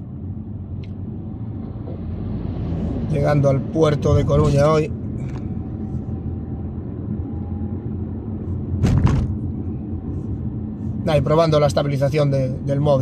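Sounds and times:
road and engine rumble in car cabin: 0.0s - 13.0s
brief thump: 8.8s - 9.4s.

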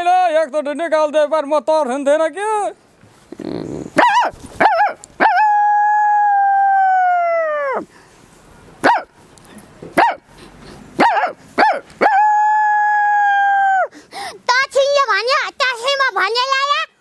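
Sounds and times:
woman imitating dog barks: 4.0s - 6.3s, 8.8s - 9.1s, 10.0s - 10.2s, 11.0s - 12.4s.

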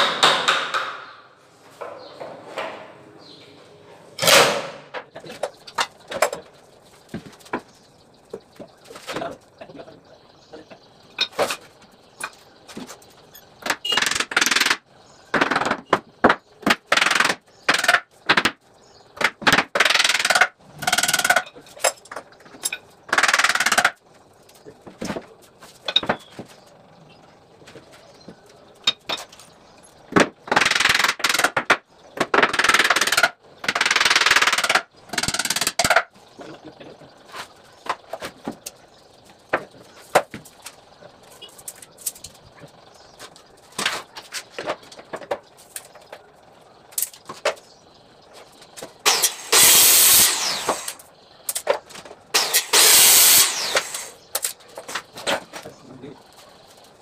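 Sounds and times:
knocks and clicks on plywood: 0.0s - 1.2s
rasping tool noise: 49.0s - 51.0s, 52.4s - 54.2s.

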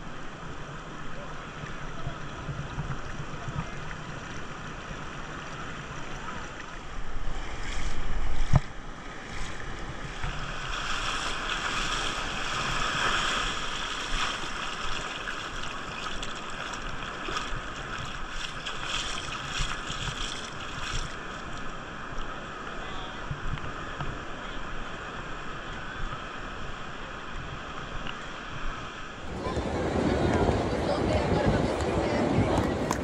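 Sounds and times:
surf washing over sand: 0.0s - 33.0s
wind buffeting microphone: 29.2s - 33.0s.

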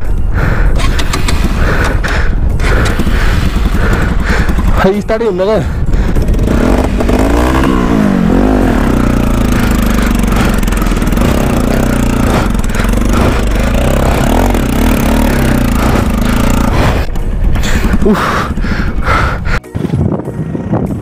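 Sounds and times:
motorcycle engine running under load: 0.0s - 19.6s.

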